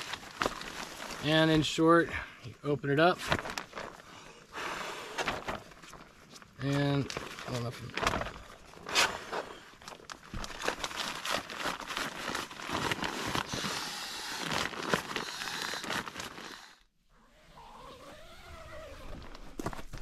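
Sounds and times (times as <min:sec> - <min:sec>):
nylon fabric crinkling: 0:00.0 - 0:01.8, 0:03.0 - 0:04.1, 0:05.2 - 0:16.7.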